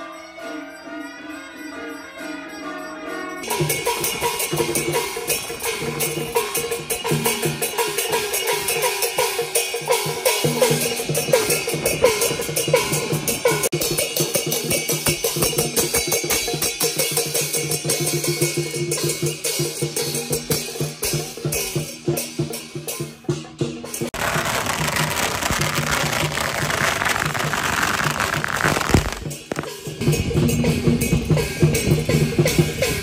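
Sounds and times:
clashing cymbals: 3.4 - 23.1
procession drum gong and cymbals: 3.4 - 26.1, 29.2 - 33.0.

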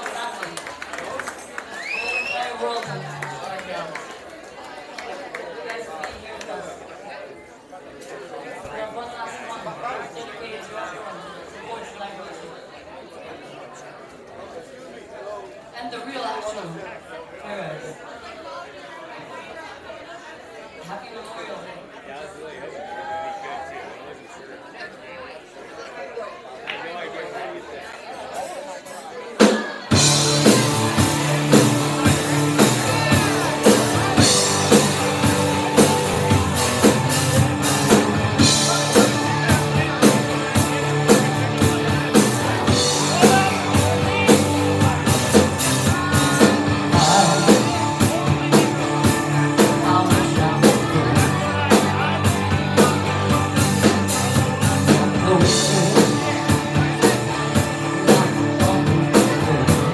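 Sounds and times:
drum kit: 29.4 - 59.9
electric bass: 29.9 - 59.9
electric guitar: 29.9 - 59.9.

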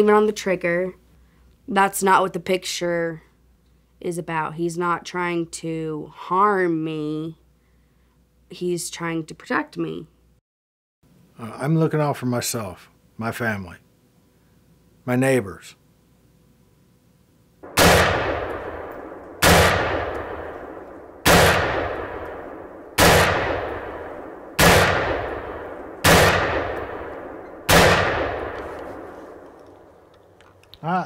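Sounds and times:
echoing gunshots: 17.6 - 30.0.

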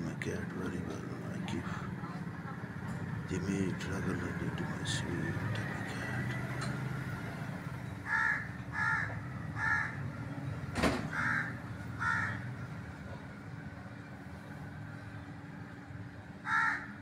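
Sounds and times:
bird cawing: 7.9 - 10.3, 11.0 - 12.8, 16.4 - 17.0.

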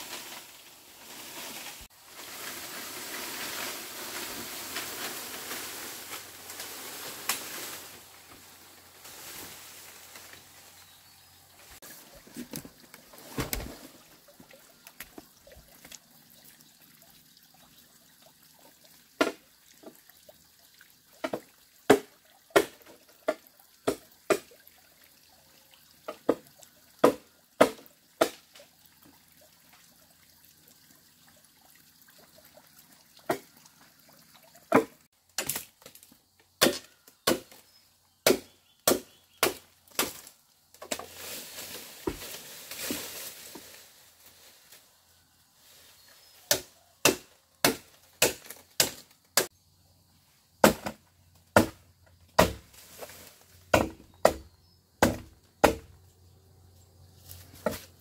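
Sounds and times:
machete chopping bamboo: 21.3 - 24.6, 27.0 - 28.5, 36.6 - 37.6, 38.2 - 40.3, 46.5 - 49.5, 50.6 - 51.8, 52.4 - 52.7, 53.7 - 56.0.

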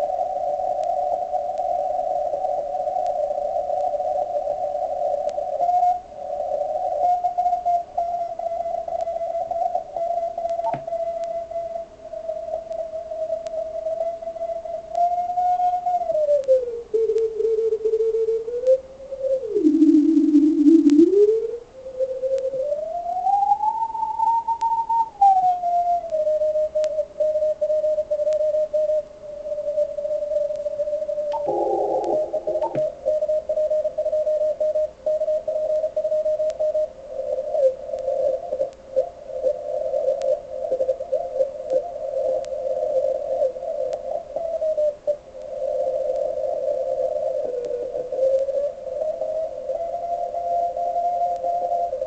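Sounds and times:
morse code beeping tone: 31.4 - 32.9
burst of radio noise: 31.4 - 33.0.

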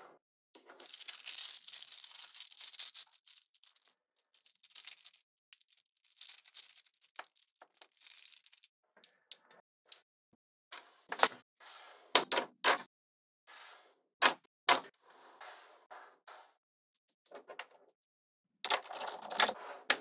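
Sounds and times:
magnetic balls rattling and clicking: 0.8 - 8.7, 18.7 - 19.5.

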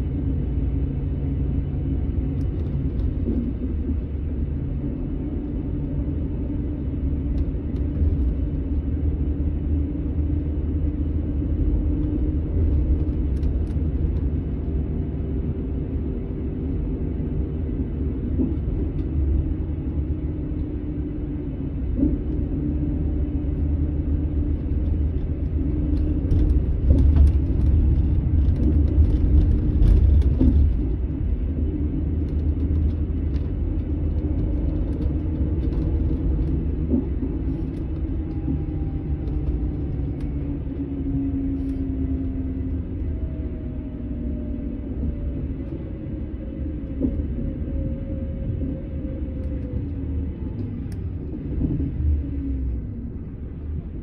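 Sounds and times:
diesel engine low rumble: 0.0 - 54.0.

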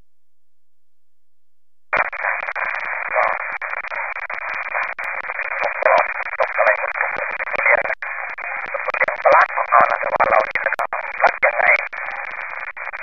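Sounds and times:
radio hiss: 2.0 - 13.0
voice over radio: 2.0 - 13.0.

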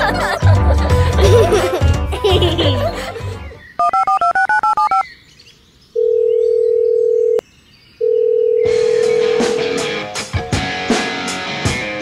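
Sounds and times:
music: 0.0 - 3.6, 8.7 - 12.0
phone keypad tones: 3.8 - 5.0, 6.0 - 7.4, 8.0 - 9.4.

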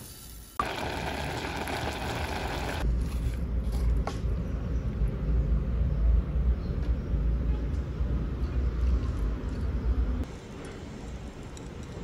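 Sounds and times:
pot simmering with bubbling hiss: 0.6 - 2.8.

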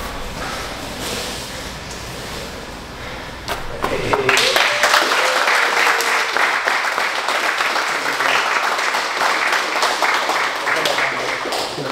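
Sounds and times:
people applauding: 3.8 - 11.9.

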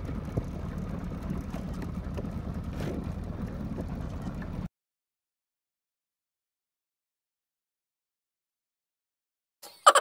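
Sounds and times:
wind buffeting microphone: 0.0 - 4.7.

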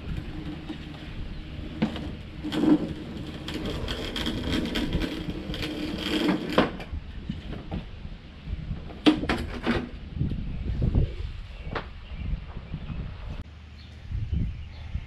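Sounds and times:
rope creaking and scraping: 0.0 - 7.5.

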